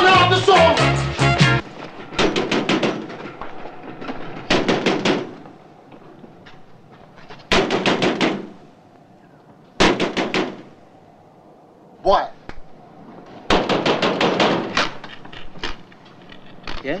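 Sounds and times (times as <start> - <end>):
fist banging on a door: 13.5 - 14.9.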